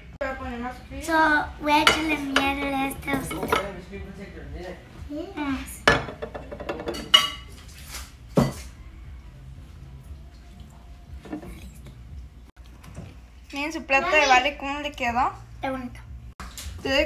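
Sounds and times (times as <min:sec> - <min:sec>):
handling of dishes: 0:01.9 - 0:03.8, 0:05.9 - 0:08.8, 0:11.2 - 0:12.0.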